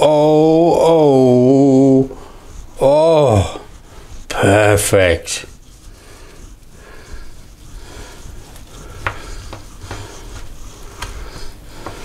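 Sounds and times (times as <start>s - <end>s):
blade and fork clicking on board: 8.4s - 10.1s.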